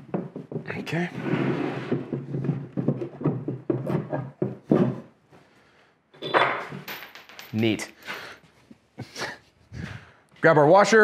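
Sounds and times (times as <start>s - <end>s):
wood and metal knocking and rattling: 0.0s - 5.2s, 6.2s - 7.7s.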